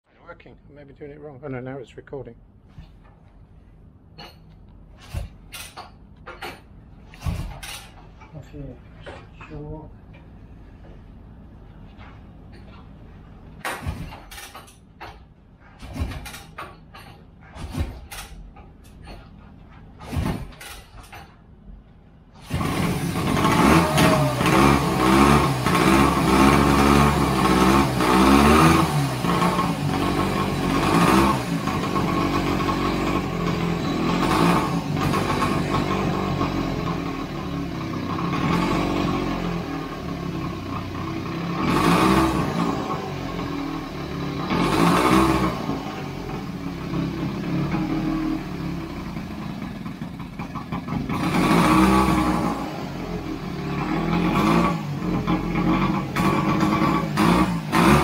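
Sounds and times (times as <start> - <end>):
two-stroke motorcycle engine revving: 22.4 - 58.0.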